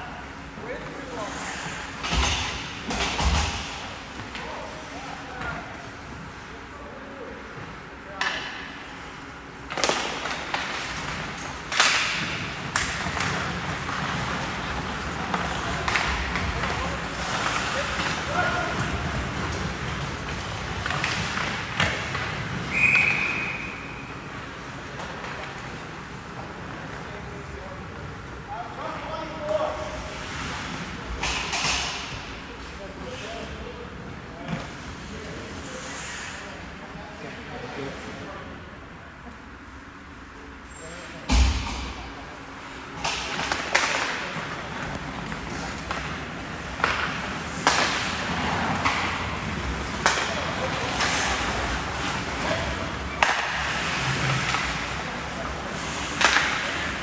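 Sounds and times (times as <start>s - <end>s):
hollow ice rink background: 0.0s - 57.0s
stick and puck knocks: 43.0s - 49.3s, 56.1s - 56.9s.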